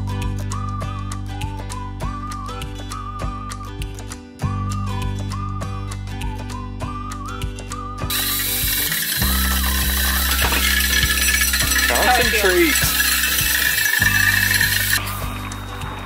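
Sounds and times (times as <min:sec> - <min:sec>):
cordless drill whisking in a bowl: 0:08.1 - 0:15.1.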